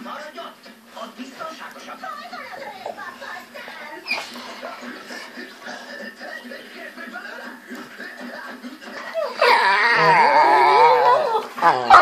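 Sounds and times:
dog moaning vocalization: 9.0s - 12.0s.

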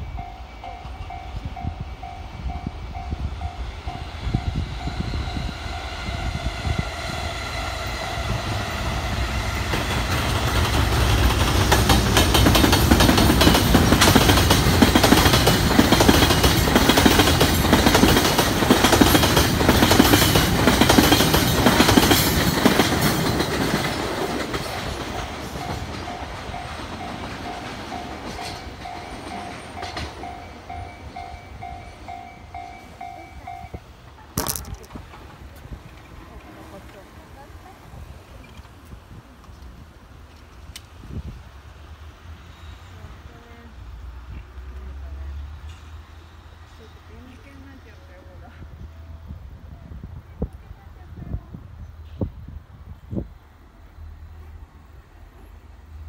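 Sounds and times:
freight train rumbling past: 0.0s - 34.2s
train wheels knocking: 9.6s - 26.4s.

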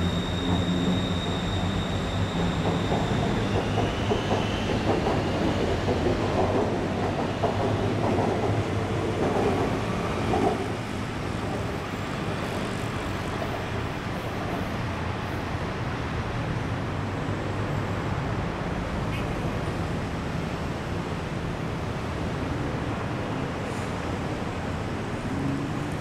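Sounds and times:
train wheels clattering on rails: 0.0s - 14.8s
electric train whine: 0.0s - 15.2s
road traffic hum: 0.0s - 26.0s.

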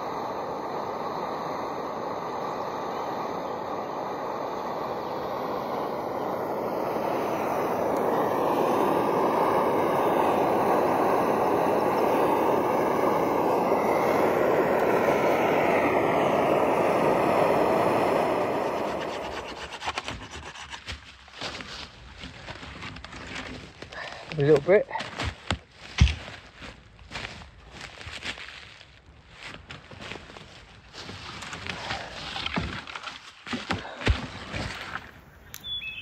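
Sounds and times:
wind and road noise: 0.0s - 20.8s
crackling and scraping: 18.8s - 35.2s.

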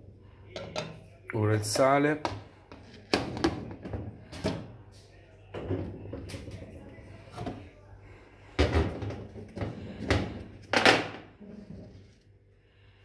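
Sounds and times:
kitchen knocks and clunks: 0.5s - 1.0s, 2.2s - 4.8s, 5.5s - 7.7s, 8.5s - 11.9s.

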